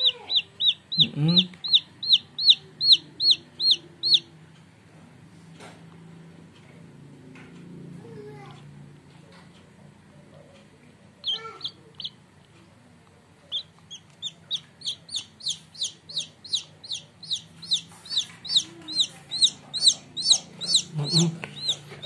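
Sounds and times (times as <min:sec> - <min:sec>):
chick peeping: 0:00.0 - 0:04.4, 0:11.2 - 0:12.2, 0:13.4 - 0:22.0.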